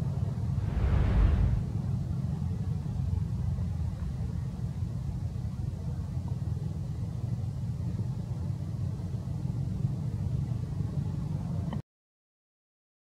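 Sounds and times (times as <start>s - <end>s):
steady low rumble: 0.4s - 2.5s.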